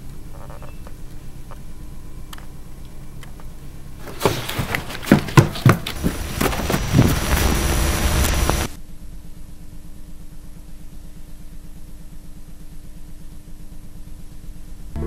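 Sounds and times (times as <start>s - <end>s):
faint steady tone: 0.0s - 4.0s
low pulsing hum: 0.0s - 4.0s, 6.8s - 15.0s
loud burst of static: 6.0s - 8.8s.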